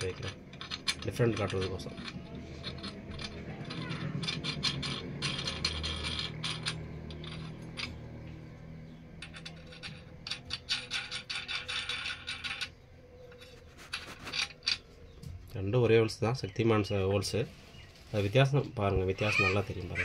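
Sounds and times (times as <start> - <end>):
metal nuts clicking and rattling: 0.0 - 14.9.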